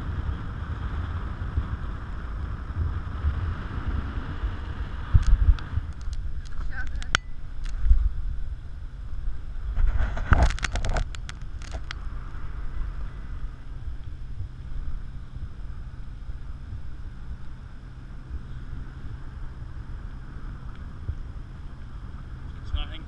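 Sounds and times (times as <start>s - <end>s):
wind buffeting microphone: 0.0s - 23.0s
clicks and rustles: 5.2s - 7.9s, 9.8s - 12.0s.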